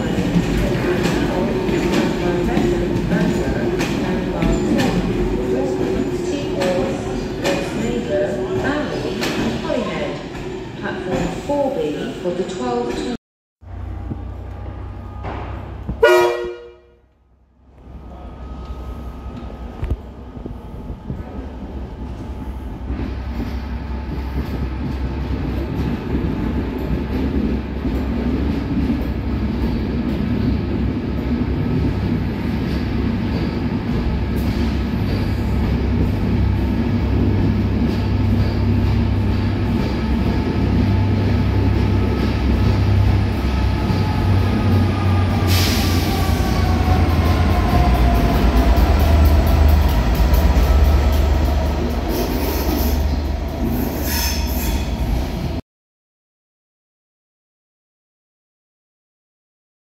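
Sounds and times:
train wheels on rails: 0.0 - 11.5, 18.6 - 55.6
diesel locomotive engine drone: 13.6 - 54.2.

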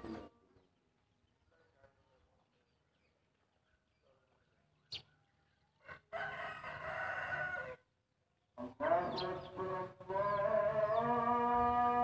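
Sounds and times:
rooster crowing: 5.8 - 7.8.

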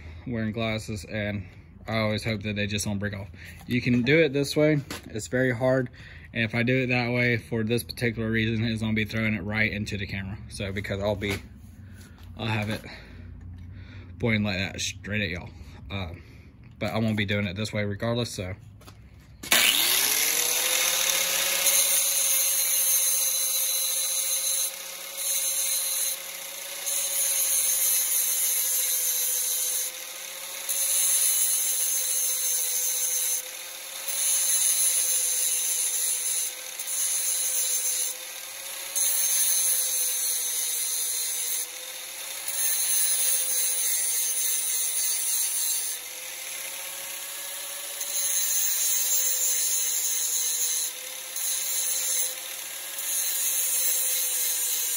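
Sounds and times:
angle grinder motor whine: 19.4 - 54.9.

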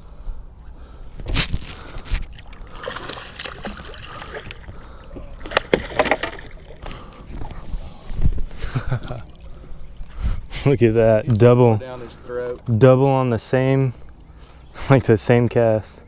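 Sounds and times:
fish thrashing and splashing: 1.3 - 7.6
water sloshing: 1.4 - 10.5.

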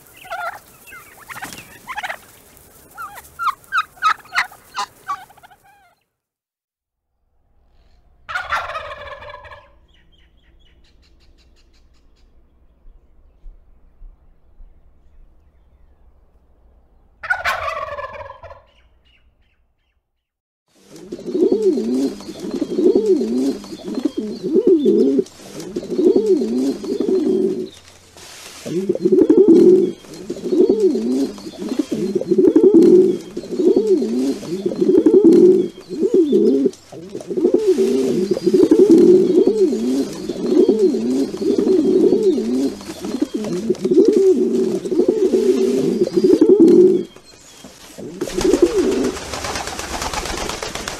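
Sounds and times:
turkey call: 0.0 - 6.0, 8.3 - 12.2, 17.2 - 19.2
pigeons cooing: 8.3 - 12.3, 20.8 - 50.9.

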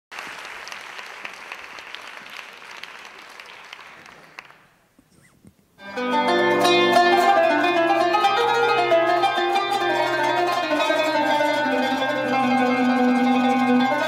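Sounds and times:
audience applauding: 0.1 - 4.9
music: 5.8 - 14.0.

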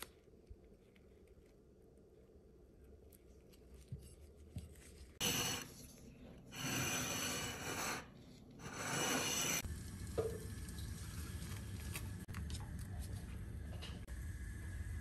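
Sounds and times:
rough rubbing and scraping: 5.2 - 9.7
pot of water boiling: 9.4 - 12.3.

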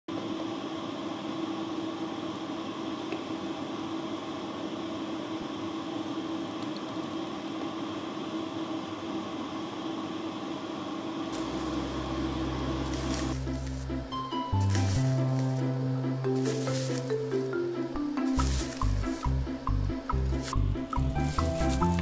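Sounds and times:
stovetop hiss and hum: 0.1 - 22.0
music: 11.4 - 22.0.

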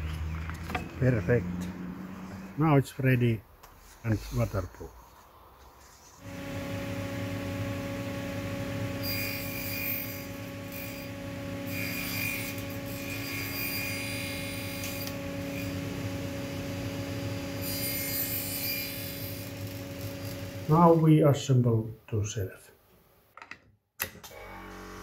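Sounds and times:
table saw motor hum: 6.2 - 21.0, 24.3 - 25.0
saw blade cutting wood: 8.8 - 15.8, 17.5 - 20.6.

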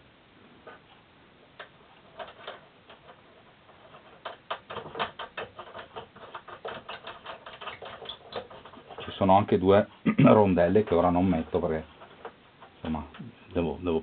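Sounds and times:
metallic clicks of nuts and bolts: 1.6 - 9.2.

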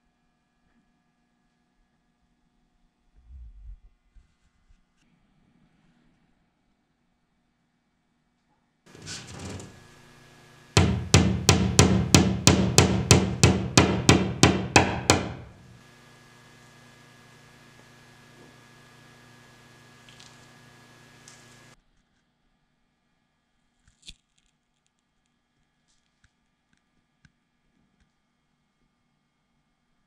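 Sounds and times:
hammer tapping nail into wall: 10.8 - 15.7.

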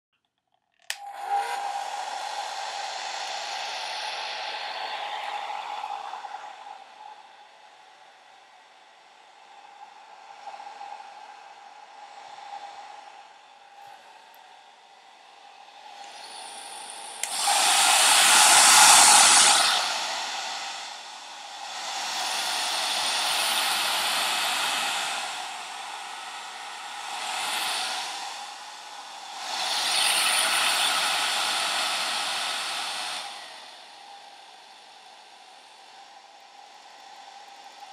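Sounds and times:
hair dryer switch click: 0.8 - 1.2, 17.2 - 17.5
hair dryer running: 0.8 - 37.9.

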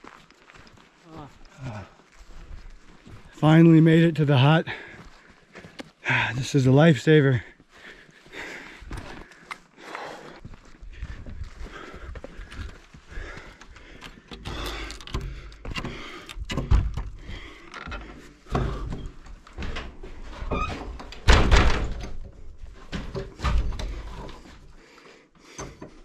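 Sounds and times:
wooden door opening and banging shut: 14.4 - 24.1.

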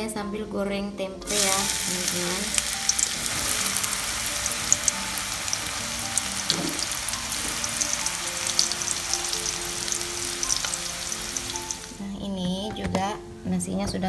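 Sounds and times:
food deep-frying in oil: 1.3 - 12.0
spatula stirring oil: 1.3 - 12.0.

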